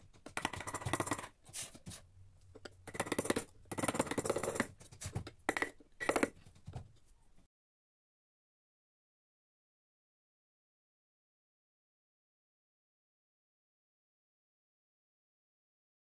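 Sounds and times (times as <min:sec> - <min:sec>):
gouge cutting and scraping wood: 0:00.3 - 0:06.4.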